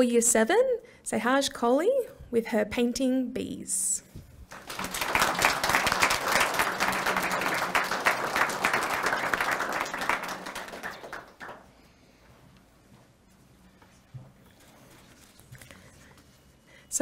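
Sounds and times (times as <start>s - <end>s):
audience applauding: 4.5s - 11.7s.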